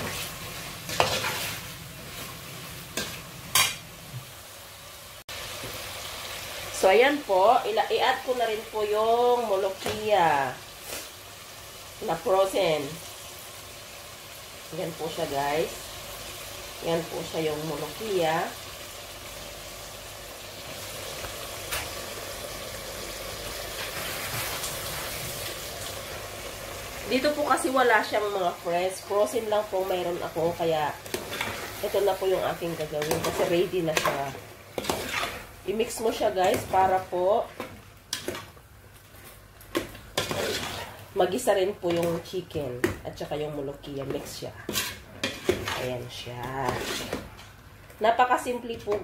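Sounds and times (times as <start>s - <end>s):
chicken sizzling: 0.0s - 49.0s
metal ladle scraping pot: 32.9s - 36.8s, 40.2s - 41.0s, 44.6s - 47.5s.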